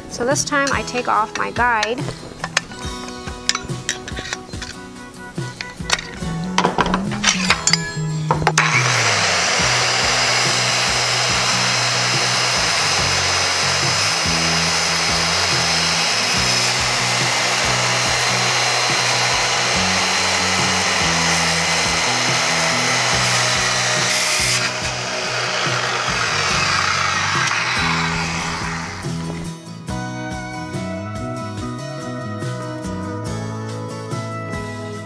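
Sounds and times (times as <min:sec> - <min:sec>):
circular saw cutting wood: 0:08.6 - 0:29.6.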